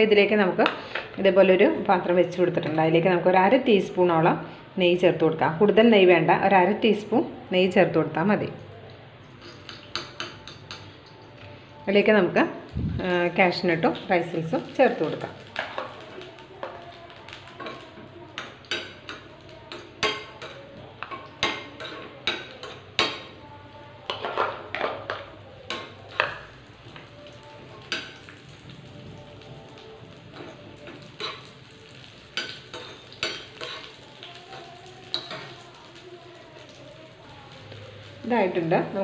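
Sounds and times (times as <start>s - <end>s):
nuts sizzling in a pan: 9.2s - 39.0s
steel spoon scraping a pan: 9.3s - 10.9s, 32.3s - 35.6s.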